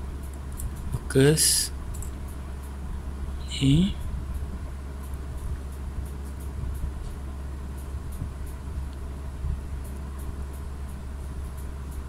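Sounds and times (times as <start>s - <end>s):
low mechanical rumble: 0.0s - 12.0s.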